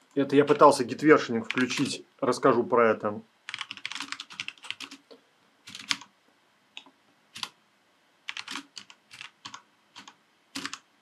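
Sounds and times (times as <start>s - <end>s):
computer keyboard typing: 1.4s - 2.0s, 3.5s - 5.1s, 5.7s - 6.1s, 6.8s - 7.6s, 8.3s - 10.9s.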